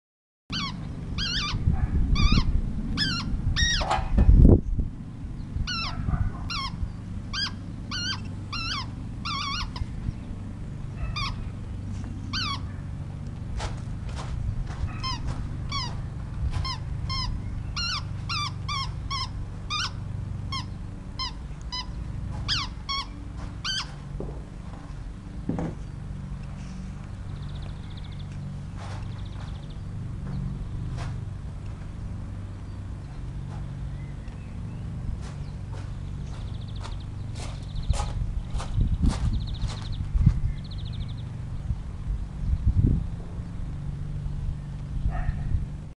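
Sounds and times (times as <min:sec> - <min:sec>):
squeaky toy squeaking: 0:00.5 - 0:01.6, 0:02.2 - 0:03.9, 0:05.7 - 0:09.8, 0:12.3 - 0:12.7, 0:14.9 - 0:16.0, 0:16.6 - 0:24.0.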